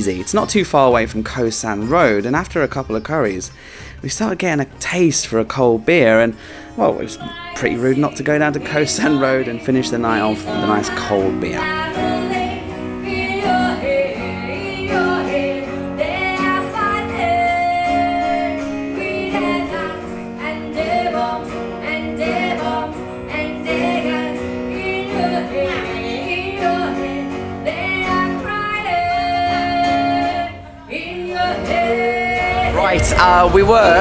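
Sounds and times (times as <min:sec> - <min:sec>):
acoustic guitar: 0:00.0 - 0:34.0
woman singing into microphone: 0:07.0 - 0:34.0.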